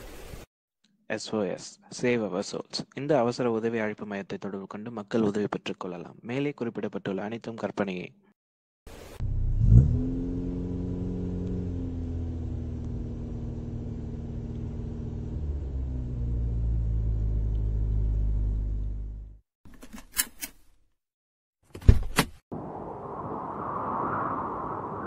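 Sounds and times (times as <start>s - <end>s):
car engine running: 9.2s - 19.4s.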